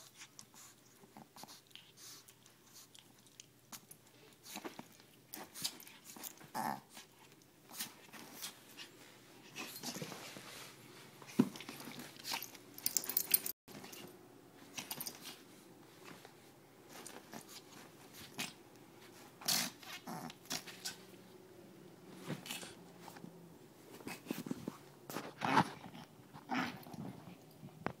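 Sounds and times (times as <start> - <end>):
dog play growls: 5.3 - 7.1, 19.4 - 21.0, 24.0 - 27.5.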